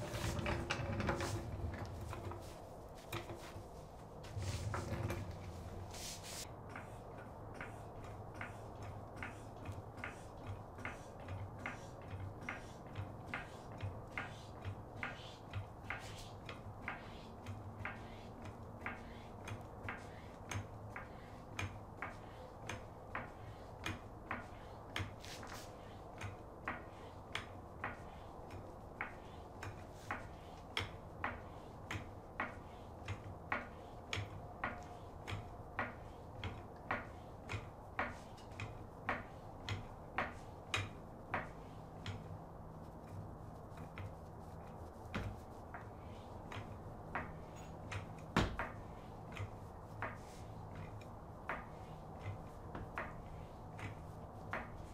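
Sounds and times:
floor jack clicking: 0.0 - 3.6.

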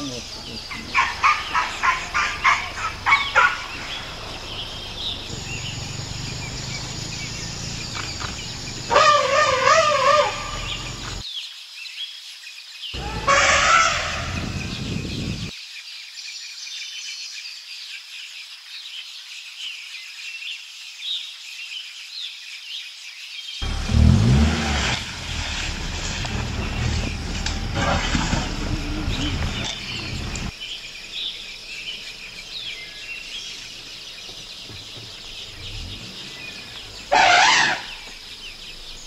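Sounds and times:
bird calls: 0.0 - 11.2, 13.0 - 15.5, 23.6 - 39.0
loud wavering call: 8.9 - 11.0, 37.1 - 38.1.

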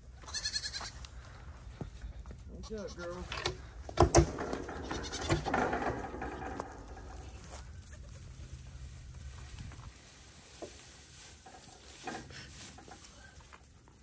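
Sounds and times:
hay rustling: 7.0 - 14.0.

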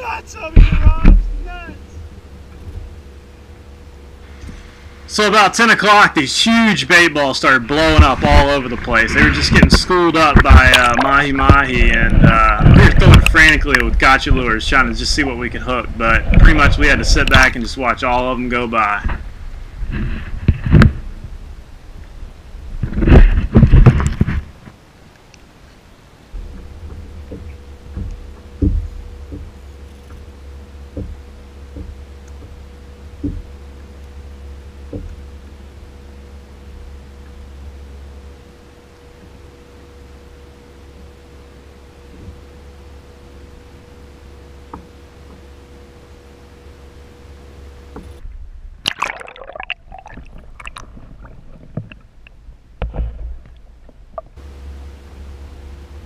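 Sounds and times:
waves knocking against kayak hull: 0.0 - 22.0, 22.8 - 24.8, 26.4 - 35.7, 42.0 - 42.5, 48.9 - 54.4
muffled underwater sloshing: 0.0 - 54.5
low rumble of wind and water: 0.0 - 56.0
knocks and small splashes: 26.4 - 35.9, 47.8 - 54.4.

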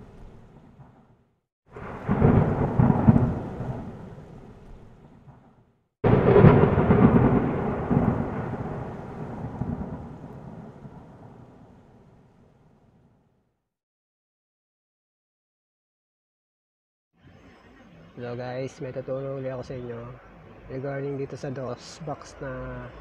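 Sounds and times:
rolling thunder: 0.0 - 13.0
sharp thunder crack: 1.7 - 12.3.

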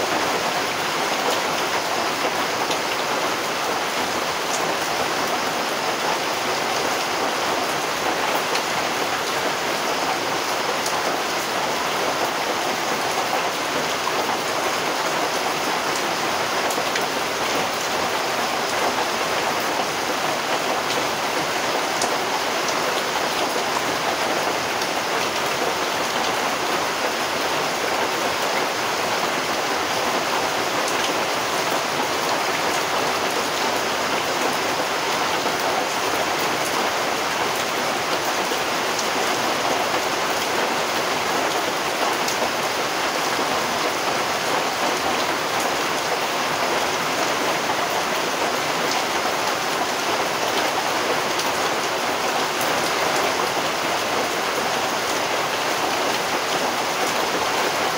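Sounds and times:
steady rain hiss: 0.0 - 57.9
rain drops ticking: 0.1 - 57.9.

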